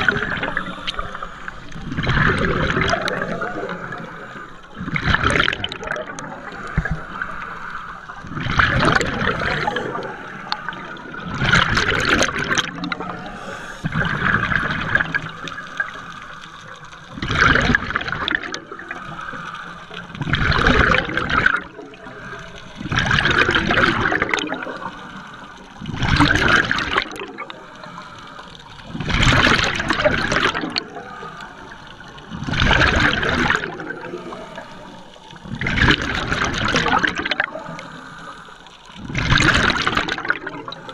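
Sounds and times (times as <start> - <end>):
exhaled bubbles gushing underwater: 0.0 - 40.9.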